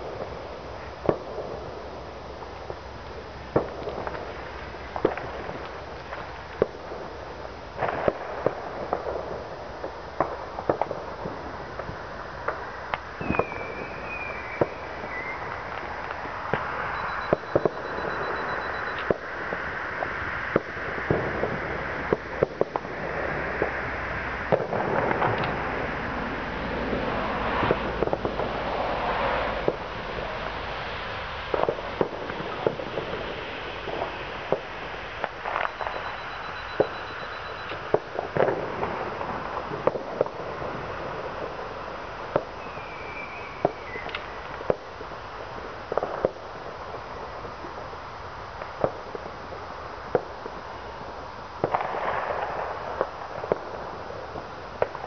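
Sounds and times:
continuous crackling din: 0.0s - 55.0s
fireworks bangs and pops: 0.0s - 55.0s
firework whistle: 11.7s - 44.9s.

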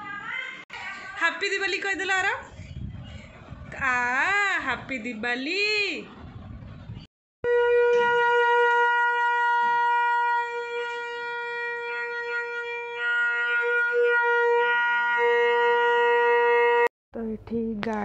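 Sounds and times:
conch shell blown: 7.4s - 16.9s.

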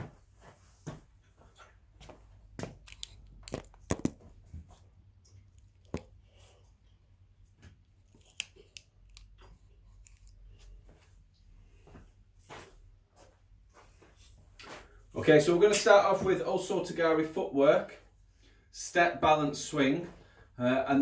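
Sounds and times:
camera handling clicks and knocks: 2.8s - 4.2s.

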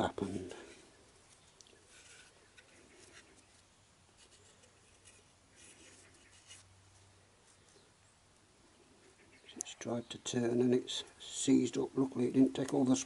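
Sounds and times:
hands rubbing and scuffing metal part: 0.2s - 6.7s.

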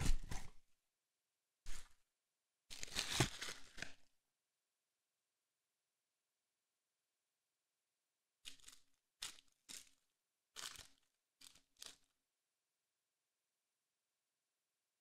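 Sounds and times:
foil wrapper crinkling and tearing: 2.7s - 4.1s, 10.6s - 12.1s.

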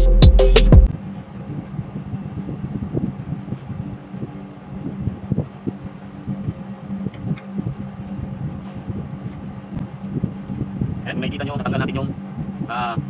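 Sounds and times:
background music with a beat: 0.0s - 0.9s
low mechanical hum: 0.9s - 13.0s
wind on microphone: 1.4s - 13.0s.

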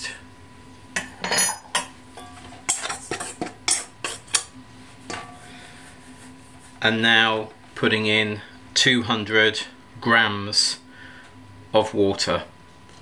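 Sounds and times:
metal spoon scraping mixing bowl: 2.4s - 4.5s.

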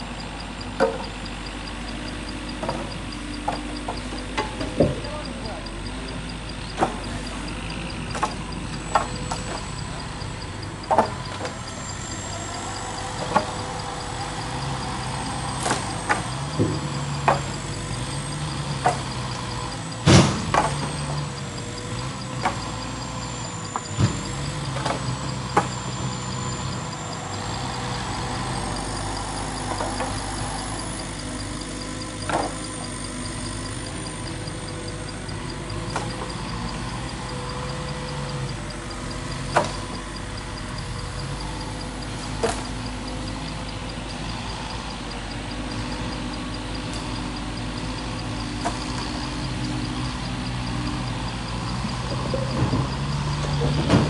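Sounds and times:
excavator diesel engine running: 0.0s - 54.0s
wooden knocks of logs: 10.9s - 11.5s, 20.1s - 21.2s.

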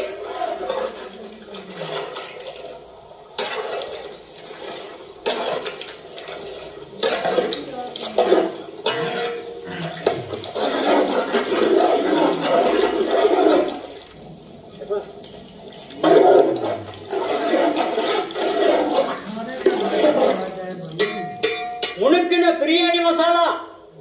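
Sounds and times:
ladle stirring and scraping: 0.0s - 22.3s
metal clinking on metal: 21.0s - 22.0s.

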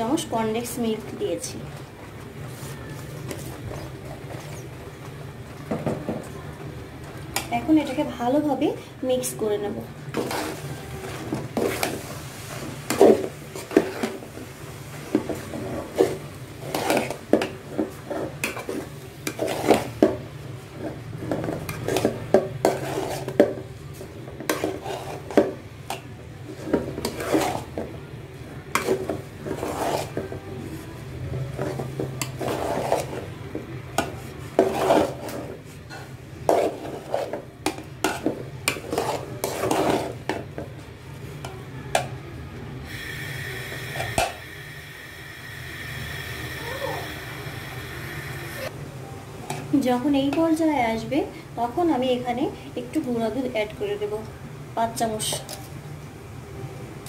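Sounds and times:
metal spoon scraping pot: 15.5s - 20.1s, 20.8s - 23.5s, 24.4s - 25.5s, 26.6s - 27.8s, 28.7s - 30.4s, 31.6s - 33.4s, 34.0s - 40.4s.

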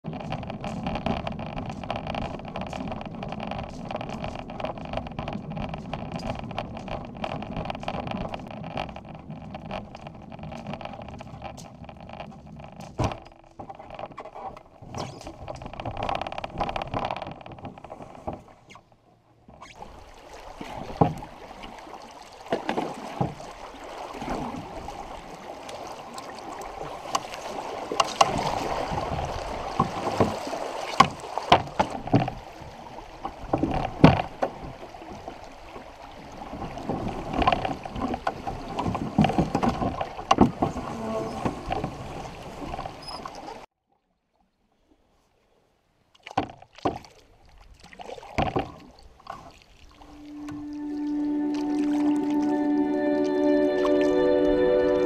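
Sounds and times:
canoe handling rumble: 0.0s - 43.7s
knocks on hull: 28.0s - 32.4s, 33.2s - 34.8s, 36.7s - 42.9s, 48.3s - 48.8s.

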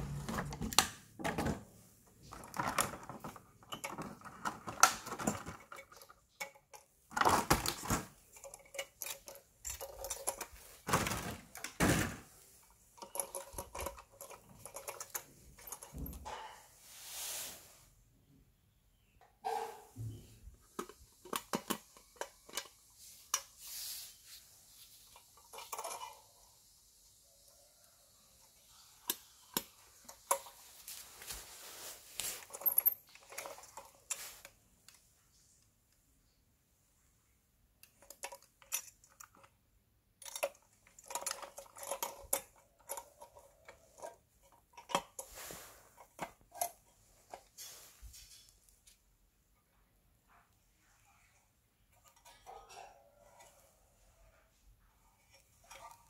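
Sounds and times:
small parts clicking and knocking: 2.2s - 16.5s, 20.0s - 23.6s, 25.0s - 26.7s, 32.2s - 35.1s, 37.8s - 49.0s.

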